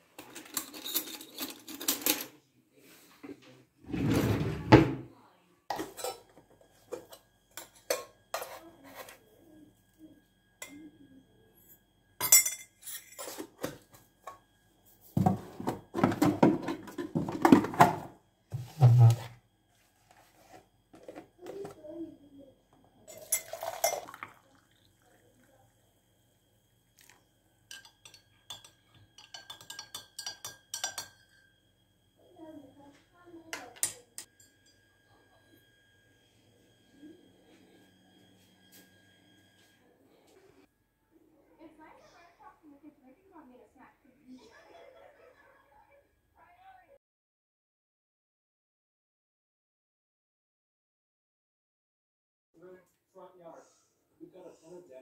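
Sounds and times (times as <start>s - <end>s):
mug and cutlery clinking on counter: 0.2s - 2.3s, 5.7s - 9.1s, 12.2s - 14.4s, 23.1s - 24.3s, 27.7s - 31.5s, 33.5s - 34.9s
spoon clinking in a ceramic mug: 6.9s - 8.6s, 12.2s - 13.4s, 23.1s - 24.3s, 27.7s - 31.5s, 33.5s - 34.9s.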